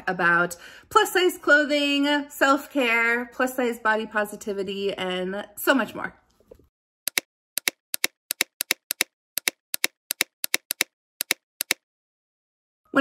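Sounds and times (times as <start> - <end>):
keyboard keystroke clicks: 7.1 - 11.8.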